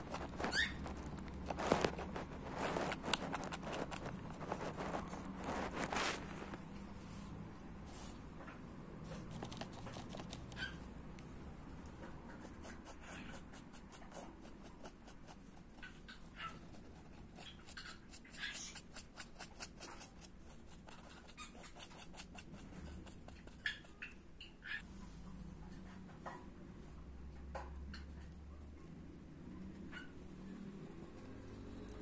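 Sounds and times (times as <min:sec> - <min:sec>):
faint squeaks: 0:00.0 - 0:02.9
paintbrush scratching on canvas: 0:00.0 - 0:08.3, 0:09.1 - 0:10.8, 0:12.0 - 0:24.2.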